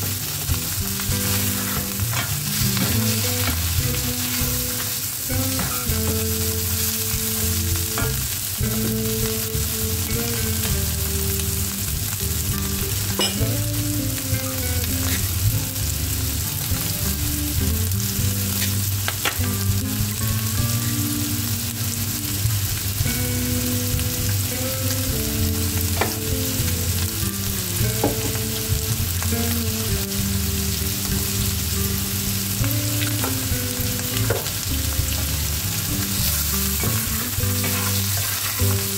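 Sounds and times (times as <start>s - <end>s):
food sizzling in oil: 0.0s - 38.9s
spatula scraping and stirring: 36.1s - 38.9s.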